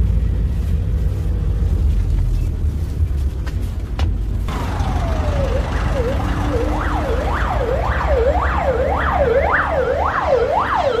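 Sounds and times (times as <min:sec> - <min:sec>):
low rumble of traffic: 0:00.0 - 0:11.0
siren yelping: 0:04.5 - 0:11.0.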